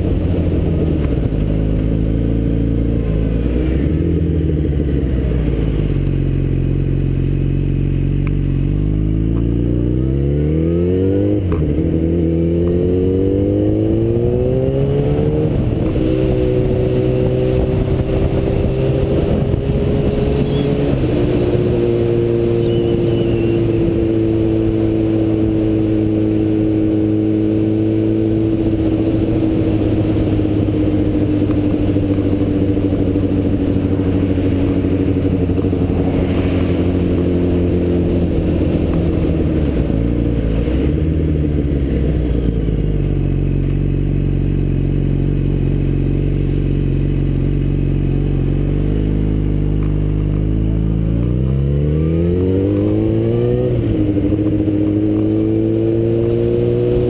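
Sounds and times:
motorcycle engine running: 0:00.0 - 0:57.0
wind noise on microphone: 0:14.2 - 0:25.6.

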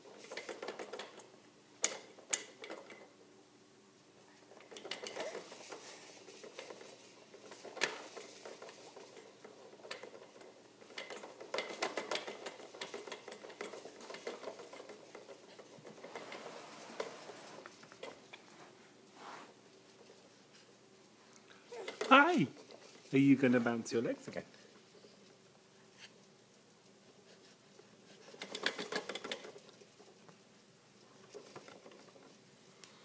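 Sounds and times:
plastic baby jumper rattling: 0:00.0 - 0:03.1, 0:04.4 - 0:18.3, 0:21.6 - 0:25.3, 0:28.1 - 0:30.3, 0:31.2 - 0:32.4.

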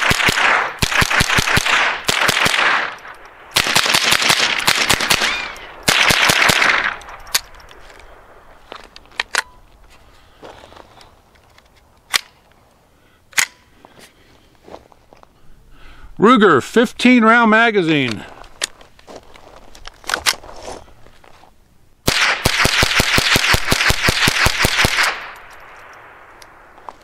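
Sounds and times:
rapid rifle fire: 0:00.0 - 0:07.0, 0:22.1 - 0:26.3
sharp clicks: 0:24.8 - 0:26.6.

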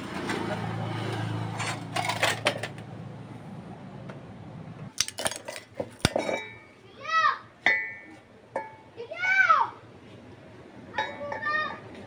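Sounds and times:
steel parts clinking: 0:04.9 - 0:06.6.

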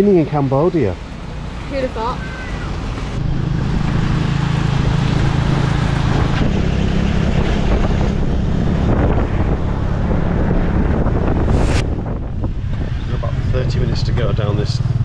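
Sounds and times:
wind and road noise: 0:00.0 - 0:15.0.

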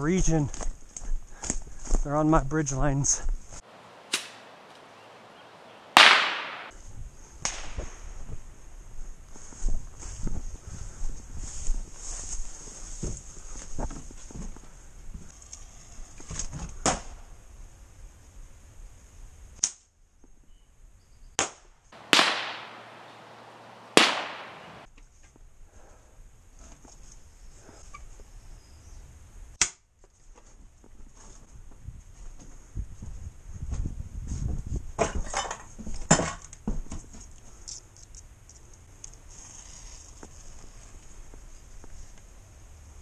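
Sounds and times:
bottle rockets cracking: 0:04.1 - 0:04.5, 0:05.9 - 0:06.7, 0:22.0 - 0:24.9.

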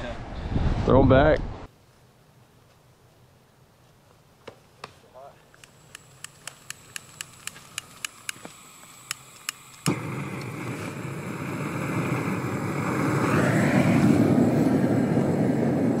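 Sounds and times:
sharp clicks: 0:05.5 - 0:10.5
propane torch rushing: 0:05.6 - 0:16.0.

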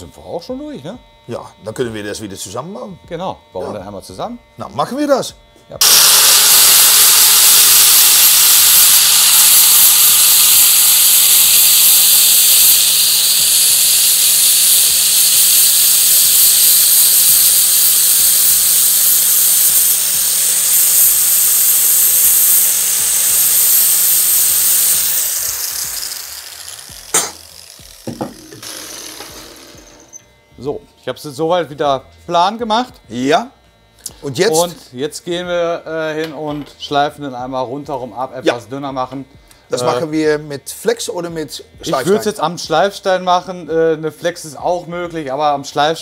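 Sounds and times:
grinder grinding metal: 0:00.0 - 0:33.1.

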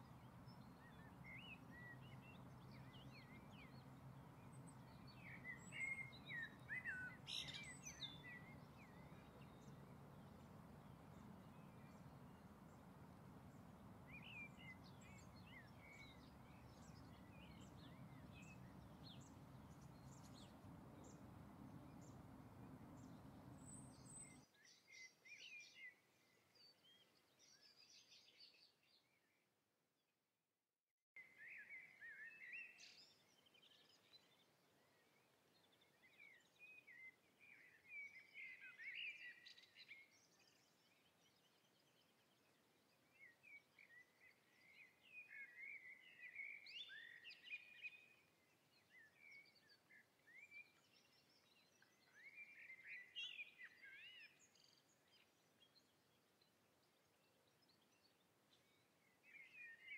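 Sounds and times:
songbird twittering: 0:00.0 - 0:25.8, 0:43.2 - 0:48.2, 0:48.9 - 0:55.8.

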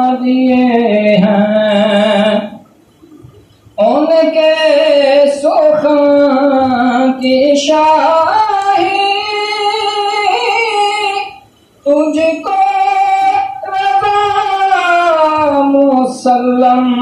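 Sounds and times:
man singing unaccompanied: 0:00.0 - 0:02.6, 0:03.8 - 0:17.0.

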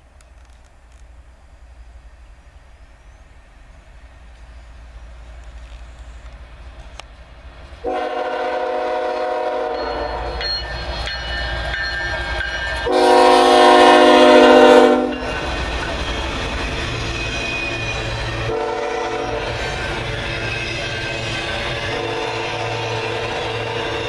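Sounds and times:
train cars rumbling and clattering: 0:00.0 - 0:24.0
locomotive air horn: 0:07.8 - 0:10.4, 0:12.8 - 0:15.3, 0:18.5 - 0:19.6, 0:21.8 - 0:24.0.

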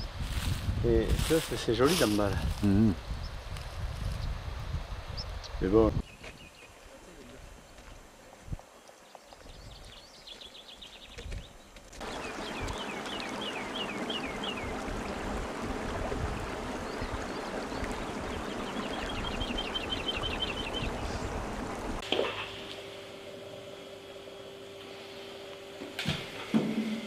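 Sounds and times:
songbird chirping and trilling: 0:08.8 - 0:15.1, 0:16.8 - 0:21.3
stream babbling: 0:12.0 - 0:23.0
faint steady hum: 0:12.0 - 0:27.0.

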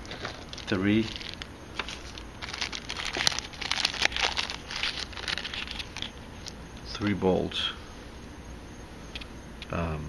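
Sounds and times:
paper or plastic packaging rustling: 0:00.0 - 0:06.6.

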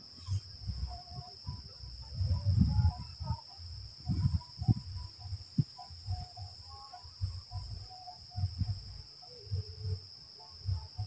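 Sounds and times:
high-pitched insect chorus: 0:00.0 - 0:11.0
wind buffeting microphone: 0:00.3 - 0:06.5.

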